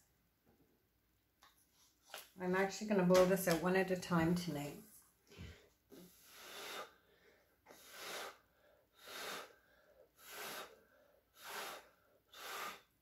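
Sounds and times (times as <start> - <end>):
person blowing puffs of breath: 5.4 - 13.0.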